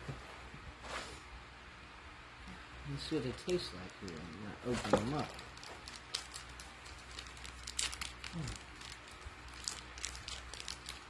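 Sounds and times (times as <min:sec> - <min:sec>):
wrappers crinkling: 0:03.3 - 0:11.0.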